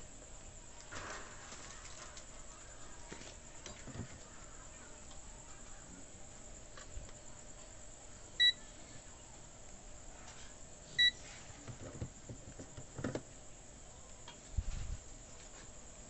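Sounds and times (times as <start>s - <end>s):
multimeter short beeps: 8.4s - 8.6s.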